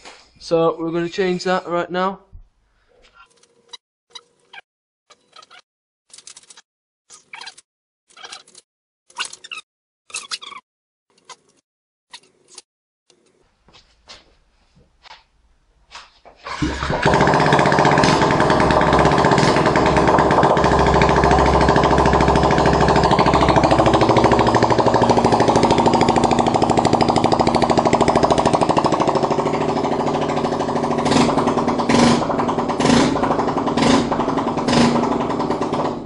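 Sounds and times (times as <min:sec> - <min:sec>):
engine throttle blips: 0:16.5 - 0:36.0
loud rattly engine idling: 0:16.6 - 0:36.0.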